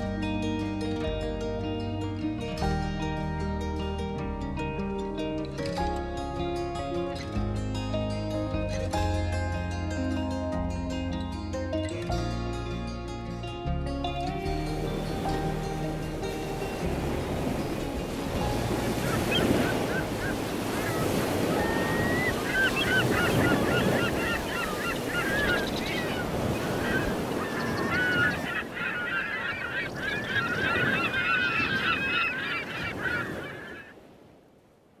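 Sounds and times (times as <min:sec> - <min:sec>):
geese honking: 0:18.5 - 0:34.0.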